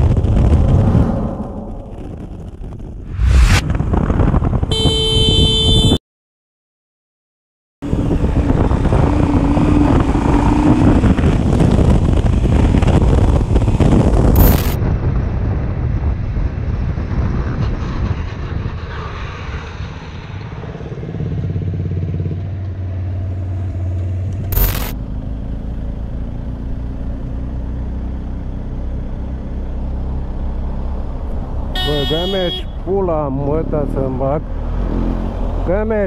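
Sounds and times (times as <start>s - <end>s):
motorcycle riding: 0.0s - 6.0s, 7.8s - 36.0s
wind rushing over microphone: 0.0s - 6.0s, 7.8s - 22.0s
motorcycle engine cruising: 7.8s - 14.8s
sharp click: 14.4s - 14.8s, 24.6s - 25.0s.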